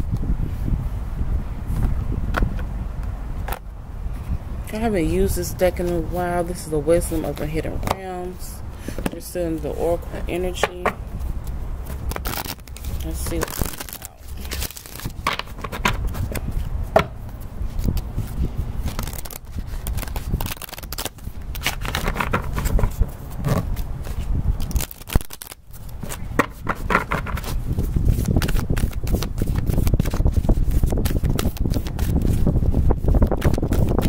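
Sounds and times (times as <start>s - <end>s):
wind rumble on microphone: 0.0s - 34.0s
cards being shuffled: 10.6s - 34.0s.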